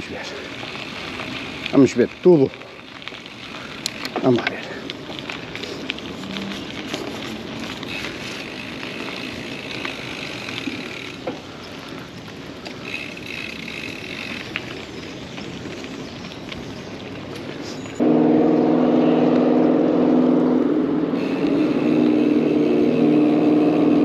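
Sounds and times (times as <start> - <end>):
bicycle tyre rolling noise: 0.0 - 24.0
small clicks and rattles: 0.7 - 12.0
high buzzing: 18.0 - 24.0.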